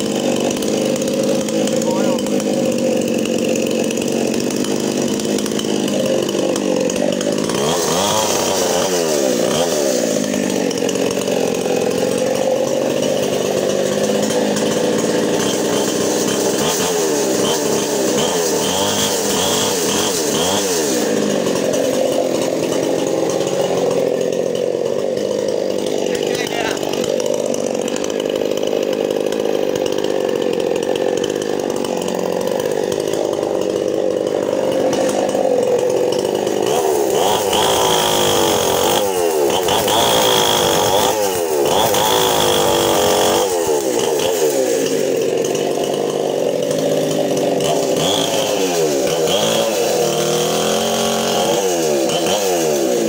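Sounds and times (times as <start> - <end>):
chainsaw engine revving: 0.0 - 53.0.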